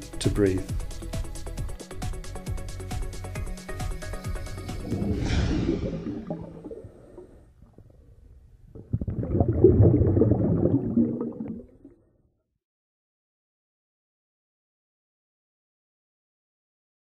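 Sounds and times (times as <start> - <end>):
low gurgling rumble: 4.4 - 12.1
falling swoosh: 4.5 - 7.4.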